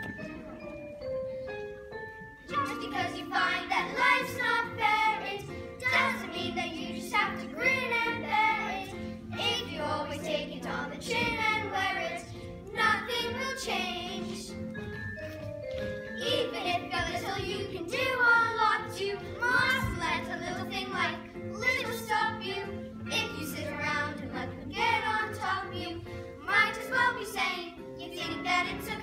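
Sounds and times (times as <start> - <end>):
backing music: 0.0 - 29.0
children singing: 2.5 - 14.5, 16.2 - 29.0.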